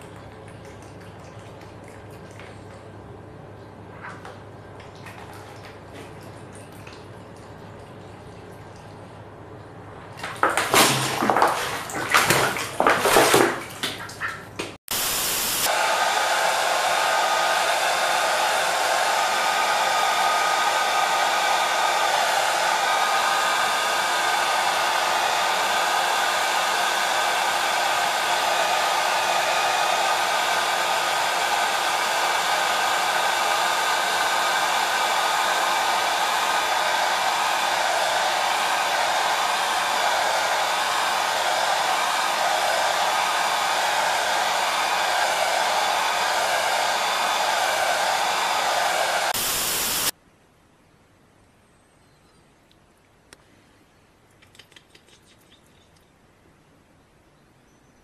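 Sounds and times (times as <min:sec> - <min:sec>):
duck splashing in water: 0:00.0 - 0:02.9, 0:04.0 - 0:09.0, 0:10.1 - 0:14.8
hair dryer blowing: 0:14.8 - 0:50.2.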